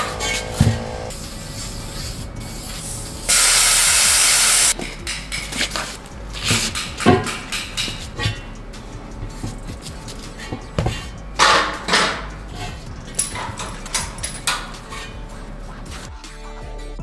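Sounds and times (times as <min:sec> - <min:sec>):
aerosol spray can hissing: 0:01.1 - 0:04.8.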